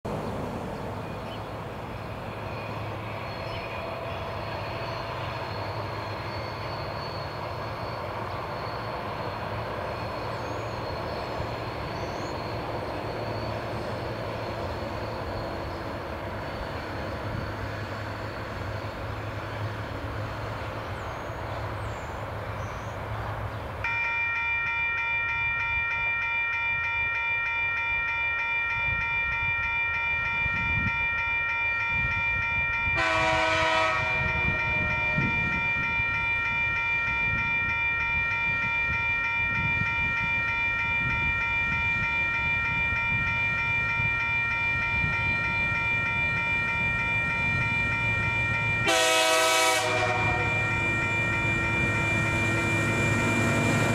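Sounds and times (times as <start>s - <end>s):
locomotive engine hum: 0.1s - 53.9s
locomotive air horn chord: 32.9s - 36.6s, 39.6s - 53.9s.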